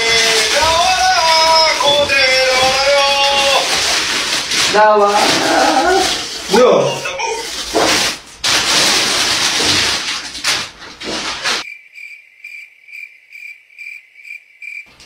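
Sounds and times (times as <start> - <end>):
plastic packaging tearing: 0.0 - 11.6
cricket chirping: 11.6 - 14.9.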